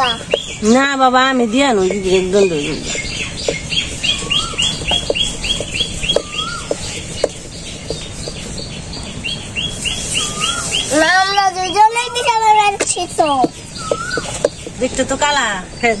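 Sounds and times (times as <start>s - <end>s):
small birds chirping: 0.0s - 16.0s
rolling pin knocking on metal plate: 3.4s - 8.7s.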